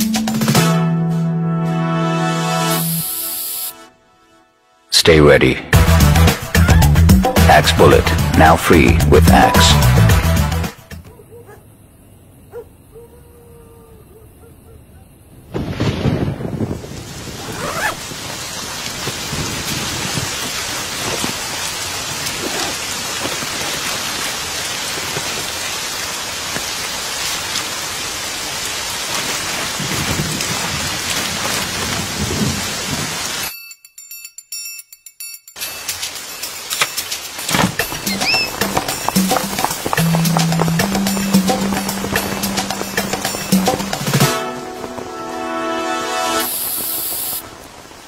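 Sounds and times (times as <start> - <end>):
low thunder rumbles: 15.4 - 24.1, 29.2 - 33.3
thunder crack: 15.5 - 17.5
heavy rain pouring: 15.8 - 33.5, 35.6 - 48.0.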